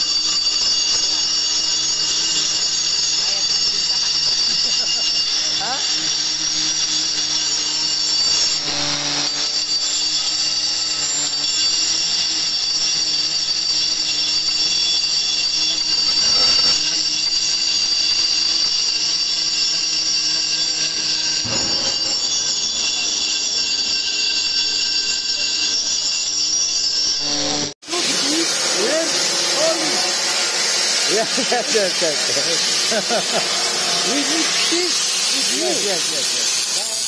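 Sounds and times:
air chisel hammering on steel: 27.8s - 37.0s.

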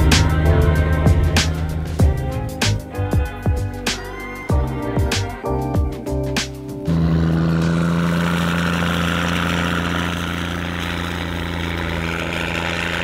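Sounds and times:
music: 0.0s - 8.1s
heavy diesel engine running: 0.0s - 13.0s.

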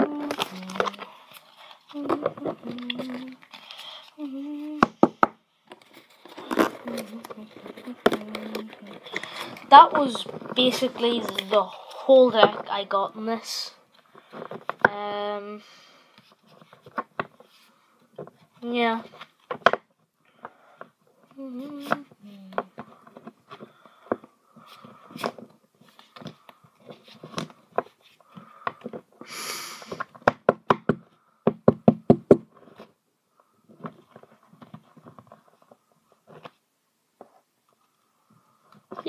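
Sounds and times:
packaging rustle: 0.0s - 4.4s, 5.7s - 12.8s
knocks and taps on cards: 30.0s - 32.5s.

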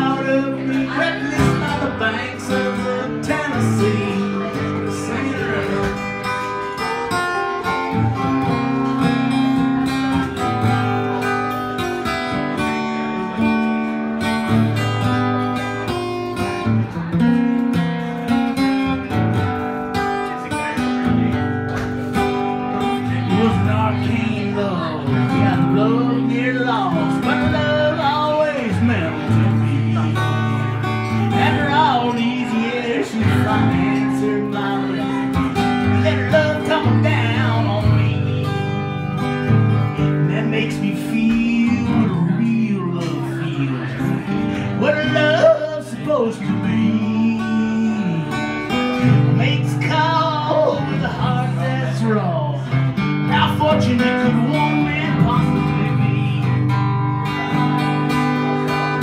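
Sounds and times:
acoustic guitars playing: 0.0s - 59.0s
man singing: 0.0s - 59.0s.

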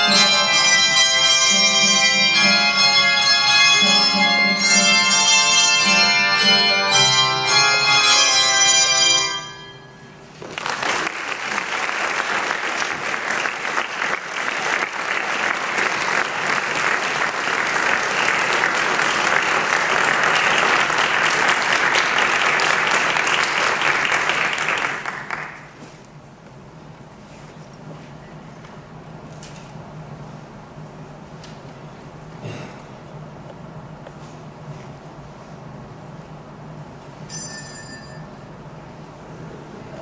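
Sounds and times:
audience applauding: 10.4s - 25.8s
handbell chord ringing: 37.2s - 38.6s.

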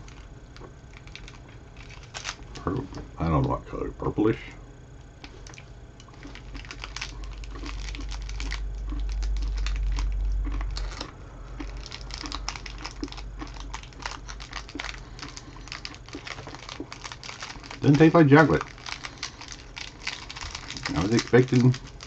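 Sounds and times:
small crackles and clicks: 0.0s - 2.7s, 5.1s - 22.0s
low rumble: 6.3s - 18.0s.

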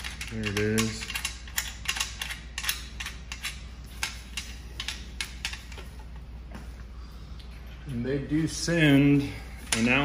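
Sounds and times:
metallic clicks and taps: 0.0s - 5.9s.

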